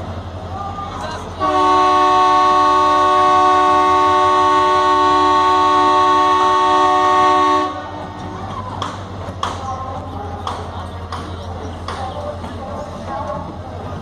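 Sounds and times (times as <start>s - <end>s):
locomotive horn blast: 1.4s - 8.1s.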